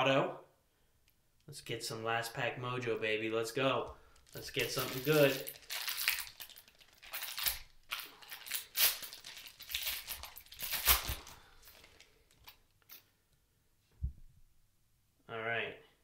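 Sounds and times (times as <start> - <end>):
foil wrapper crinkling and tearing: 4.1 - 12.6.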